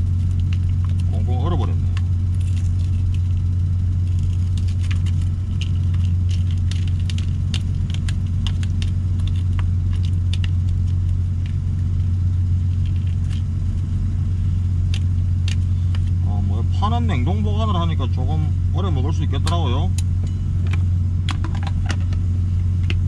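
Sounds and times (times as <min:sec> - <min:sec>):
frozen onions crackling: 0:00.0 - 0:16.2
diesel engine idling: 0:00.0 - 0:23.0.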